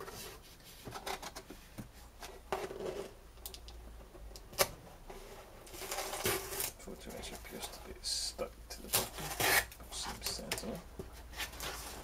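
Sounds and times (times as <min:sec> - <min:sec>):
parts rustling in cardboard box: 0:09.0 - 0:12.0.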